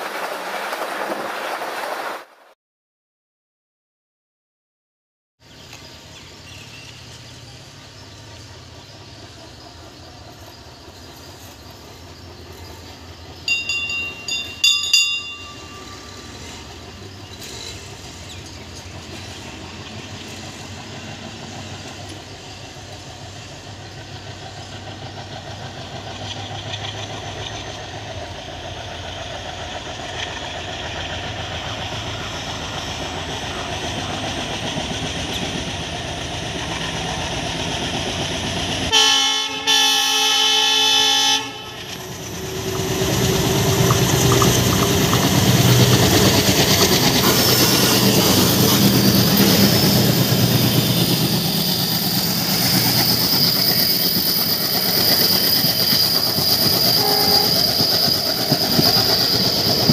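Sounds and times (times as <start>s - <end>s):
diesel locomotive engine rumble: 5.4s - 59.9s
train horn blasts: 38.9s - 42.0s, 56.9s - 57.7s.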